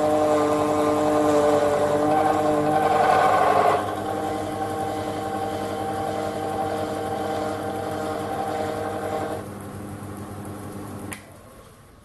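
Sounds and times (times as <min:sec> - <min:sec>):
metal lathe humming: 0:00.0 - 0:09.5.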